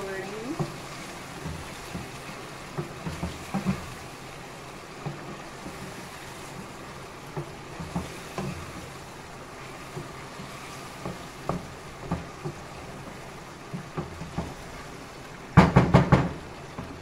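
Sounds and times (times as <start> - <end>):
food sizzling in hot oil: 0.0 - 4.1.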